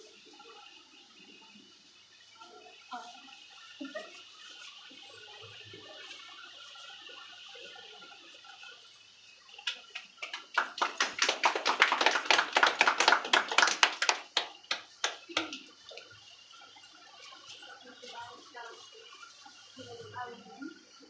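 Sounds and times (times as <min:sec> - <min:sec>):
group clapping hands: 0:09.6 - 0:15.8.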